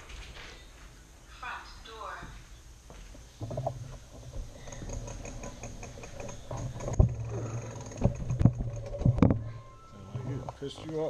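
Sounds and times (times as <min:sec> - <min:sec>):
bicycle rolling rumble: 0:03.3 - 0:09.8.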